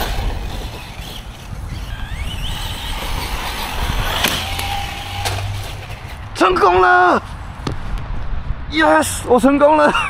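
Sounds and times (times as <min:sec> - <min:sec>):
electric motor whining: 0:00.0 - 0:06.3
wind noise rumble: 0:00.0 - 0:09.7.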